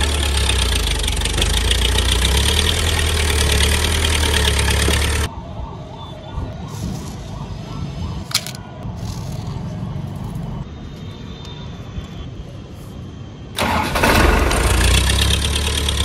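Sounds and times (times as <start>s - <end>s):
tractor engine rumbling: 0.0s - 5.3s, 13.6s - 16.0s.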